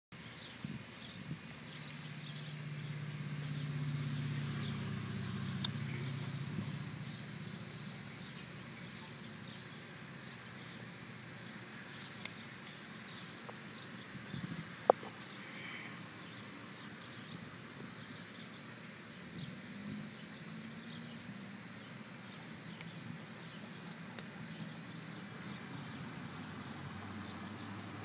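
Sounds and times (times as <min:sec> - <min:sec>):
outdoor background noise: 0:00.1 - 0:28.0
passing motor engine hum: 0:00.4 - 0:28.0
faint ticks: 0:22.3 - 0:23.0.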